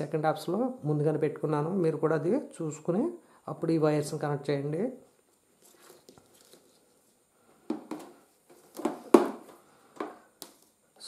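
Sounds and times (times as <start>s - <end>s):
cables rustling: 5.2s - 10.8s.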